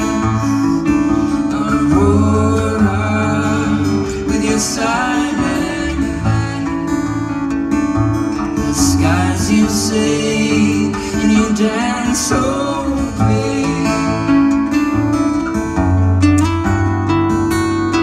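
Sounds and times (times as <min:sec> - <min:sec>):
person singing: 0:00.0 - 0:07.4, 0:08.6 - 0:14.7
acoustic guitars playing: 0:00.0 - 0:18.0.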